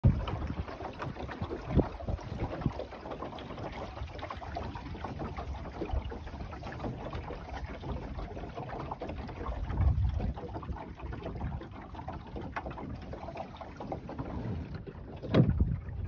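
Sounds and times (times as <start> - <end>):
water lapping along a boat hull: 0.0 - 16.0
wind rumble on microphone: 0.0 - 16.0.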